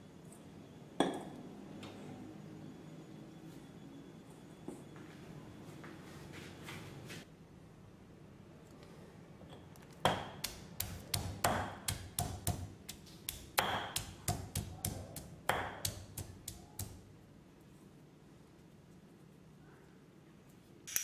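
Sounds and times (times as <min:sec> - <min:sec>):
pestle pounding in stone mortar: 0:10.0 - 0:17.0.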